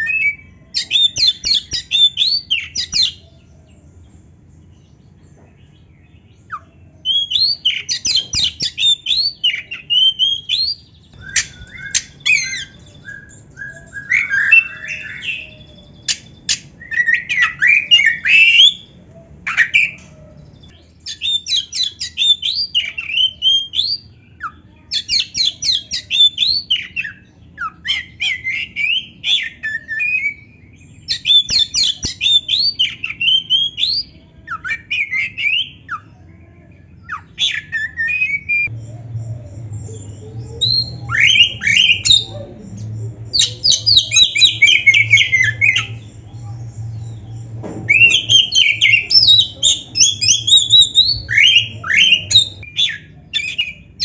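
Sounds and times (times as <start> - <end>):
magpie-robin singing: 0.0 - 54.0.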